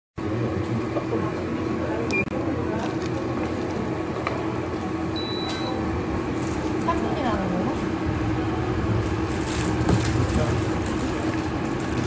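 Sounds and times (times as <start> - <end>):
cooker humming: 0.2 - 12.0
higher beep: 5.2 - 5.8
short electronic beep: 5.2 - 5.8.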